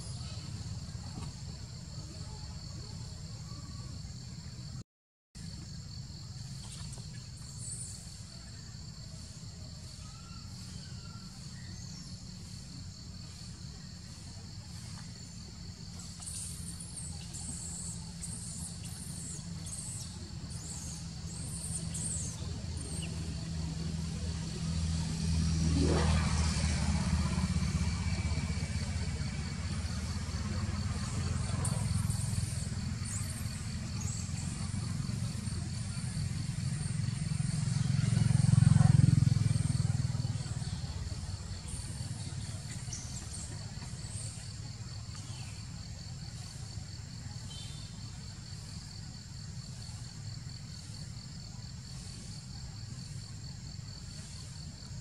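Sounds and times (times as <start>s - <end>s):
vehicle engine rumble: 0.0s - 4.8s, 5.4s - 55.0s
steady high-pitched whine: 7.0s - 37.8s.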